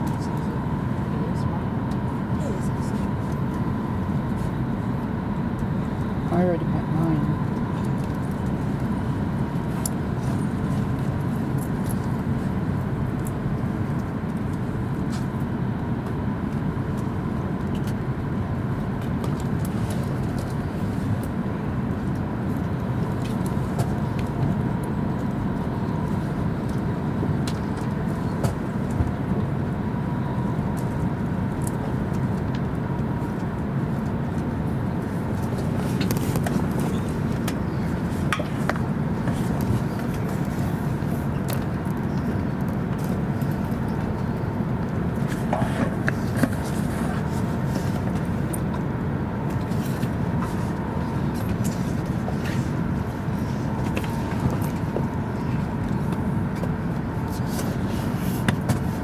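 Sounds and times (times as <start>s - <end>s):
faint steady whine: 0.0s - 59.0s
train running noise from cabin: 6.3s - 8.2s, 34.2s - 41.7s.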